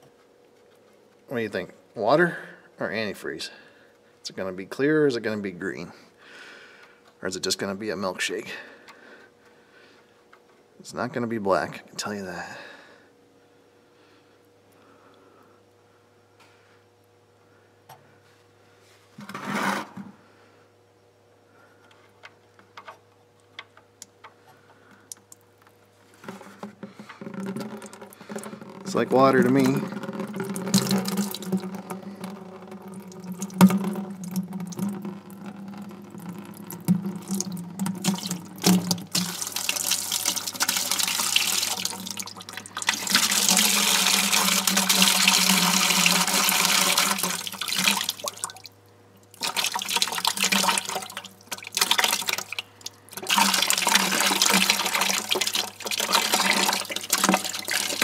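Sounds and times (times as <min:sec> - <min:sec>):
water splashing into a pan: 0:27.5 - 0:48.7, 0:49.4 - 0:58.0.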